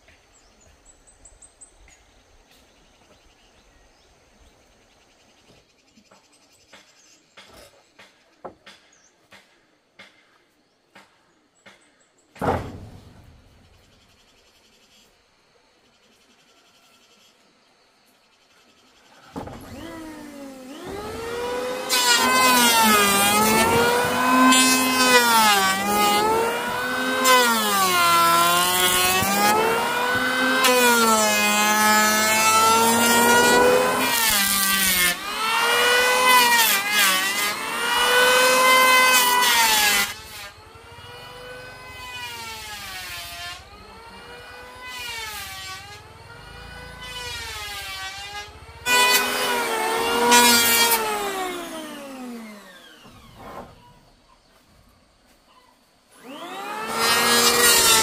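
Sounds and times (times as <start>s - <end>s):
chainsaw cutting wood: 19.3s - 53.9s, 56.1s - 58.0s.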